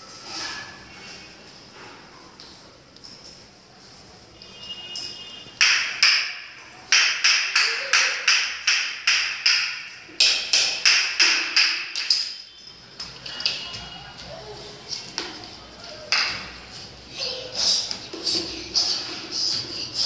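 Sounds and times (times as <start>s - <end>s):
sharp slaps echoing: 5.6s - 12.3s.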